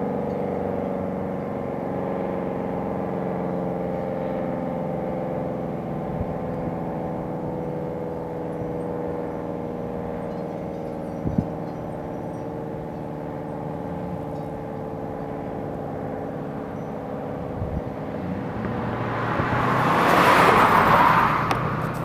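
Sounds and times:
car passing close by: 17.1s - 22.0s.

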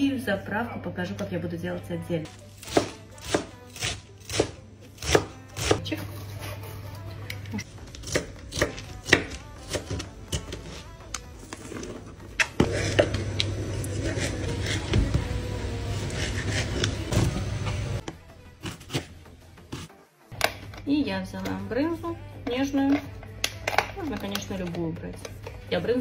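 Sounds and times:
knife chopping on cutting board: 2.7s - 5.8s.

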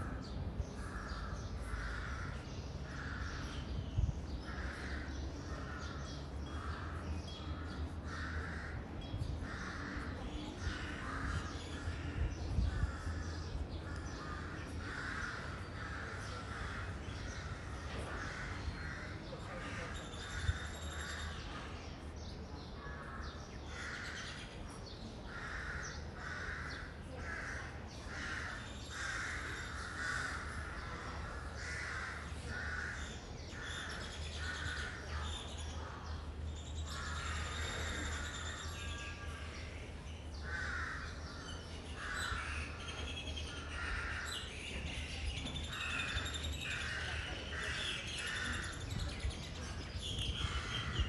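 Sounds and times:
crows cawing: 0.8s - 3.7s, 8.0s - 21.2s, 25.3s - 35.1s, 36.9s - 38.8s, 40.4s - 42.8s, 43.6s - 44.5s.

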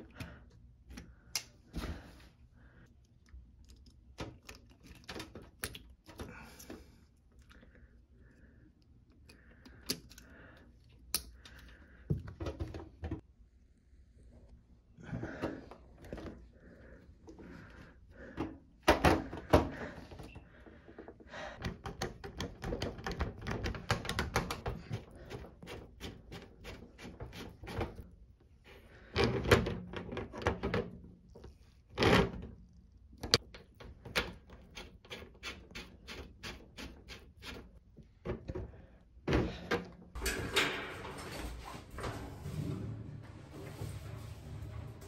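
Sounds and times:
scraping: 40.2s - 45.0s.

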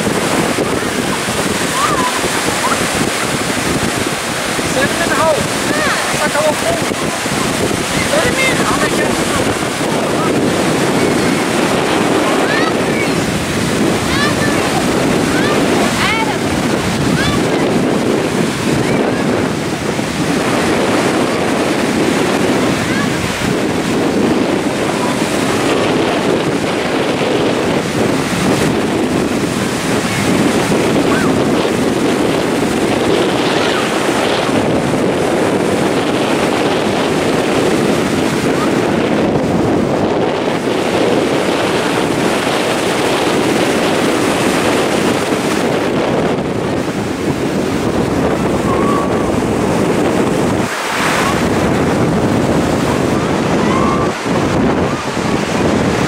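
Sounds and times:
ocean surf breaking: 0.0s - 56.0s
wind buffeting microphone: 0.0s - 56.0s.

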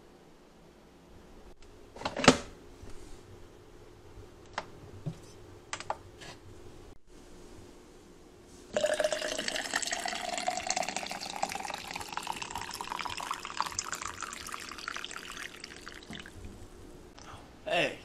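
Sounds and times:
coffee pouring into tumbler: 8.7s - 16.4s.

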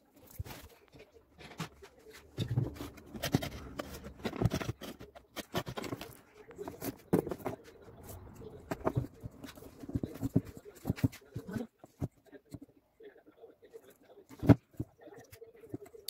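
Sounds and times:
plastic parts clicking and knocking: 0.3s - 12.6s.

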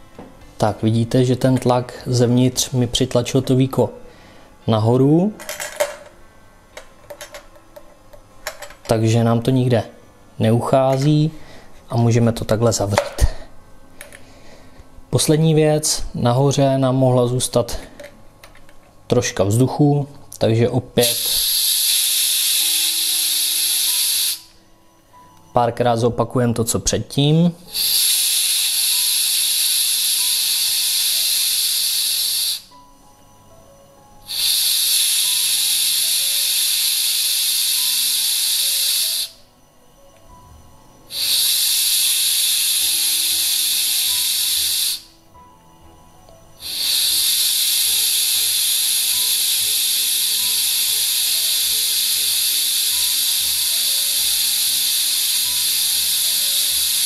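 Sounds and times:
gas hissing from keg valve: 21.0s - 24.6s, 27.7s - 33.1s, 34.2s - 39.5s, 41.1s - 45.2s, 46.6s - 57.0s.

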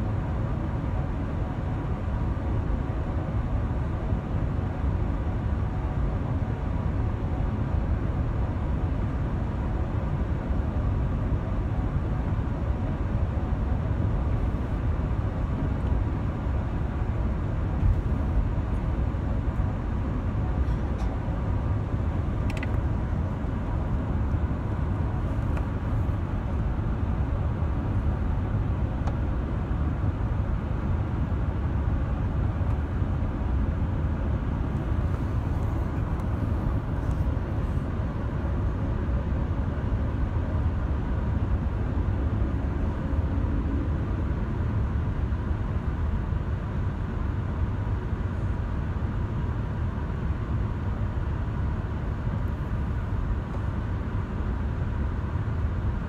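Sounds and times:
airplane cabin rumble: 0.0s - 56.0s
faint steady whine: 0.0s - 56.0s
small click: 22.4s - 22.8s.

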